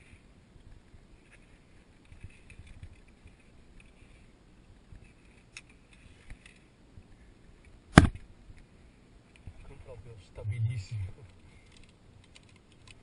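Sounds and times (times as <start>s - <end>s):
light clicks of climbing gear: 0.0s - 7.8s, 11.2s - 13.0s.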